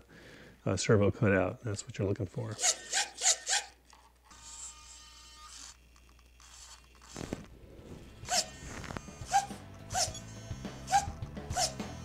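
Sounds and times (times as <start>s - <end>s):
faint servo whine: 2.6s - 11.1s
servo motor whirring bursts: 4.3s - 12.0s.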